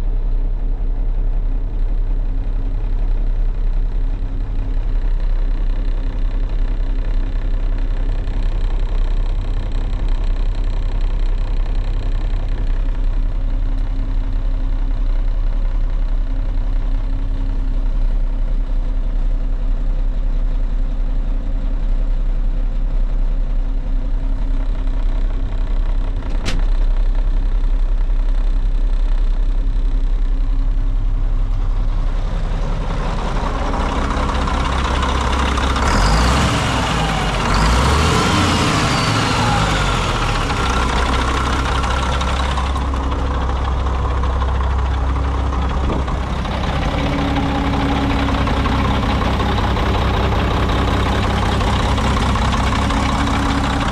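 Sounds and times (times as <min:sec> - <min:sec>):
diesel truck engine idling and revving: 0:00.0 - 0:53.9
sharp click: 0:26.3 - 0:26.7.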